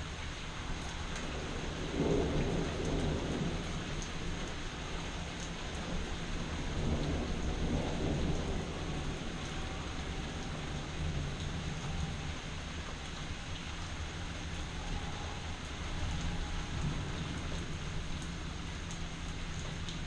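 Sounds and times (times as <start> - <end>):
steady rain: 0.0 - 20.0
thunder rumbling: 1.2 - 20.0.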